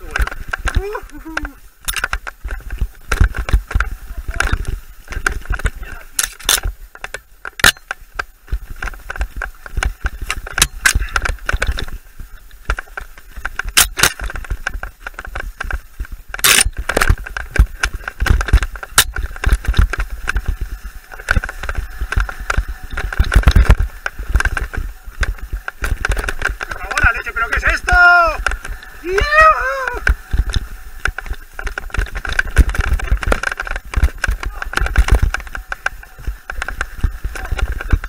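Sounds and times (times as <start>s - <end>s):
bike chain and frame rattling: 0.0s - 38.0s
bike tyres rumbling on dirt: 0.0s - 38.0s
bike knocking over bumps: 12.6s - 38.0s.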